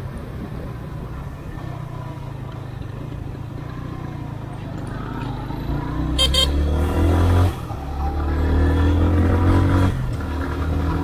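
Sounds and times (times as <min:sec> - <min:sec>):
motorcycle engine revving: 0:03.4 - 0:11.0.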